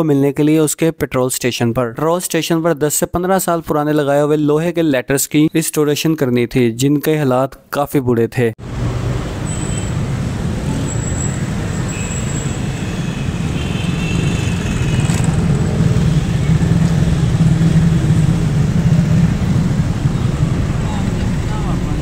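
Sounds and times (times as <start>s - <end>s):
road traffic rumble: 8.6s - 22.0s.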